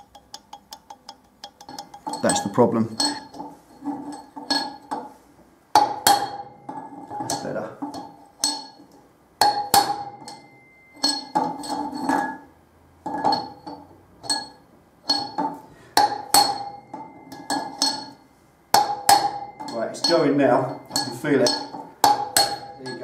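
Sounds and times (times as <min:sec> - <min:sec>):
hammer striking metal: 0:05.7 - 0:08.8, 0:09.4 - 0:12.4, 0:13.1 - 0:23.0.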